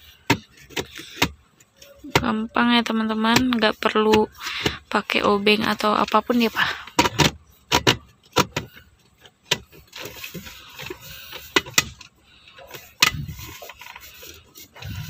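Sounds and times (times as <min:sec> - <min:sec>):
soft rustling: 0:09.2 - 0:15.0.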